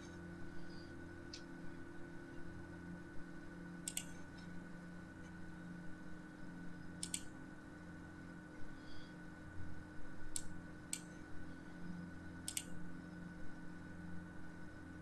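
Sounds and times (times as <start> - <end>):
low electrical hum: 0.0 - 15.0
computer mouse clicks: 3.8 - 4.5, 7.0 - 7.3, 10.3 - 11.2, 12.4 - 12.8.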